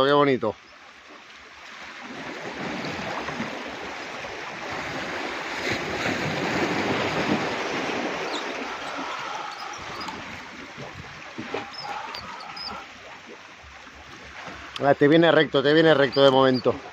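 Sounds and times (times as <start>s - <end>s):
sea waves washing onto shore: 0.0s - 16.9s.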